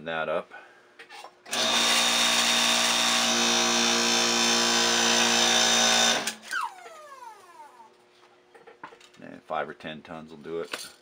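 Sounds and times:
hydraulic pump motor running: 1.5s - 7.9s.

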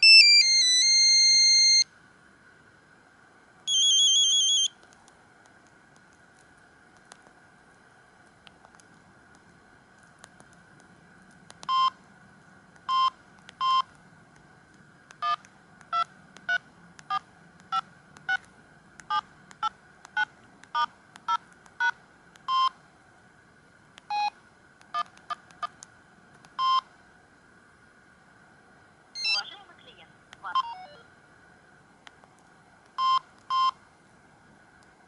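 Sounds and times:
phone keypad beeps: 3.7s - 4.7s, 11.6s - 12.0s, 12.9s - 13.9s, 15.2s - 18.4s, 20.2s - 22.7s, 26.6s - 26.8s, 29.2s - 29.6s, 30.5s - 31.0s, 33.0s - 33.8s.

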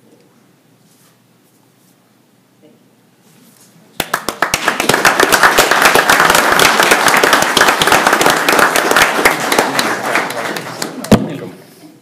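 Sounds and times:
crowd applause: 4.0s - 11.4s.

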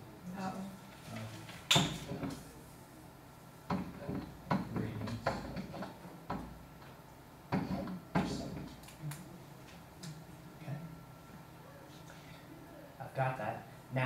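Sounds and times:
knocks and clunks: 3.7s - 6.6s, 7.5s - 8.7s.

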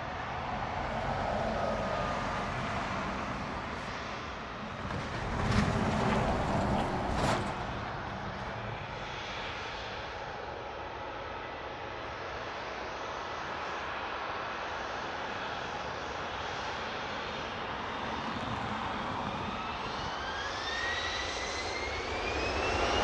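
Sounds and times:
airliner engine rushing: 0.0s - 23.0s.

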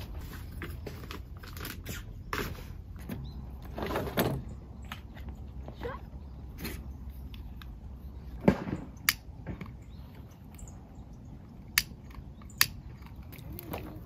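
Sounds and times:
sharp clicks: 11.6s - 13.6s.

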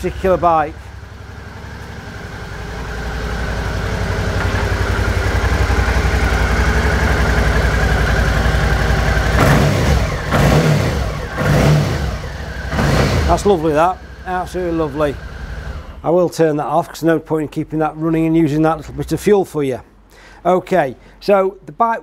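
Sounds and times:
motorcycle engine idling: 0.0s - 16.1s.

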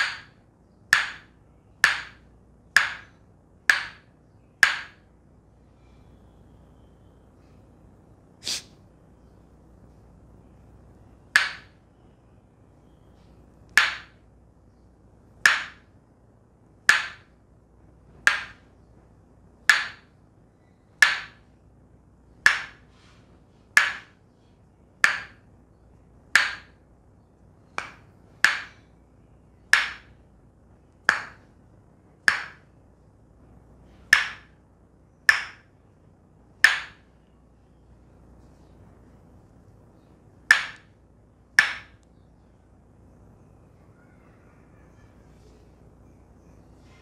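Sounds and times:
wooden mallet knocking on wood: 0.0s - 5.1s, 11.3s - 11.8s, 13.7s - 14.2s, 15.4s - 15.9s, 16.9s - 17.4s, 18.2s - 18.7s, 19.6s - 20.2s, 21.0s - 21.5s, 22.4s - 22.9s, 23.7s - 24.2s, 25.0s - 25.5s, 26.3s - 26.8s, 27.8s - 28.9s, 29.7s - 30.2s, 31.0s - 31.5s, 32.2s - 32.7s, 34.1s - 34.6s, 35.3s - 35.7s, 36.6s - 37.1s, 40.5s - 40.9s, 41.6s - 42.0s.

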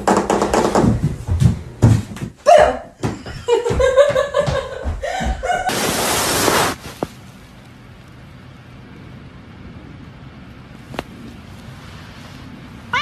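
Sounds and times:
footsteps thumping on wooden floor: 0.2s - 5.7s
person laughing: 2.5s - 5.7s.

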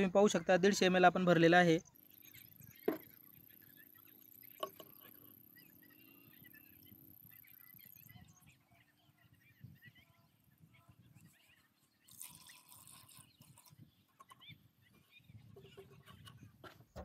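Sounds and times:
faint bird chirps: 1.5s - 17.0s.

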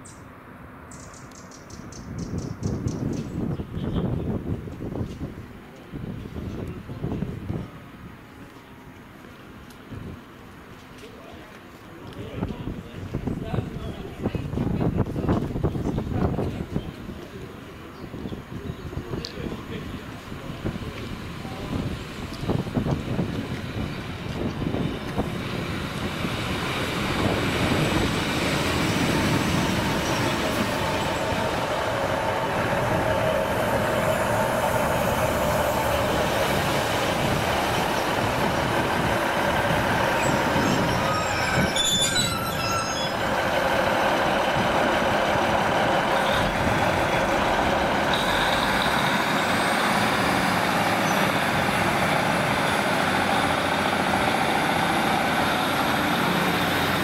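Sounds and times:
diesel train engines running: 2.4s - 57.0s
brakes squealing: 20.9s - 51.8s.

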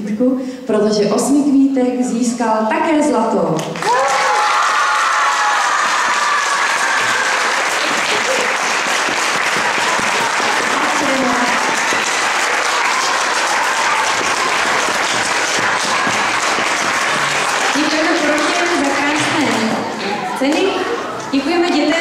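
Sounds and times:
audience applauding: 3.8s - 20.0s.

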